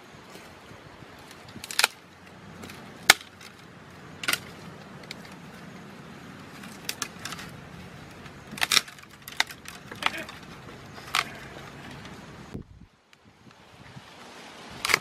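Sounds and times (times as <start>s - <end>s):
dry branches cracking and snapping: 1.1s - 12.2s, 14.8s - 15.0s.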